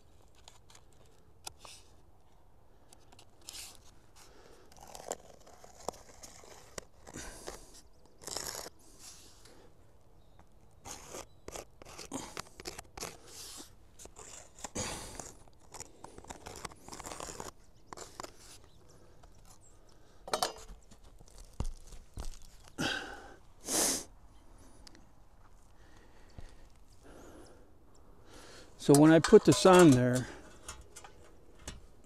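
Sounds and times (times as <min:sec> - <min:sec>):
utility knife cutting cardboard: 0:04.8 - 0:09.2, 0:10.8 - 0:18.4
soapstone scraping on shingles: 0:04.8 - 0:09.3, 0:10.8 - 0:18.4.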